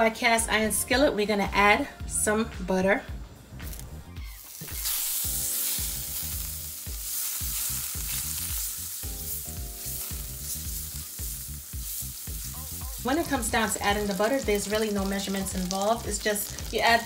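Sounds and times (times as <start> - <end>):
butter sizzling in a skillet: 4.2 - 17.0.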